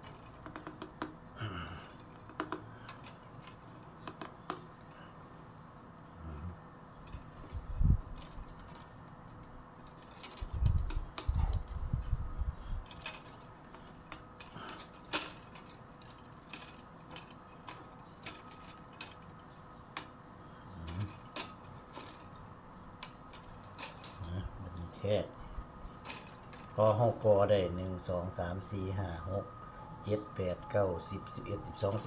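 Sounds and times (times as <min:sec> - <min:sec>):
bamboo strips clicking: 0:00.0 - 0:05.0, 0:07.0 - 0:12.0, 0:20.8 - 0:22.4.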